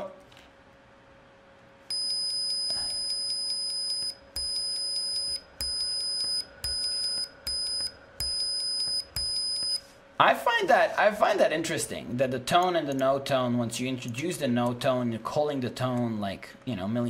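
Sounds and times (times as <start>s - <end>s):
faint ticks in beep: 1.9s - 9.8s
high-pitched buzzer beep: 1.9s - 9.8s.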